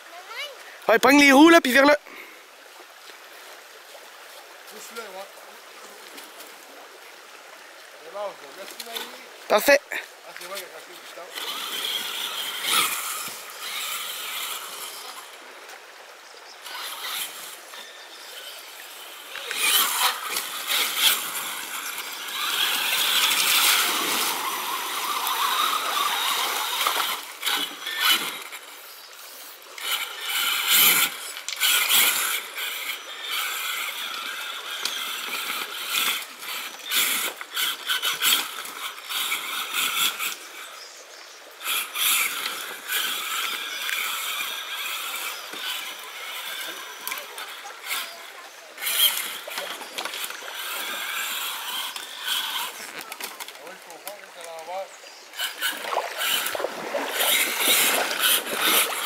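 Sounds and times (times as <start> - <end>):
toy truck motor whining: 11.3 - 15.4, 16.6 - 40.9, 41.6 - 53.6, 55.3 - 59.0.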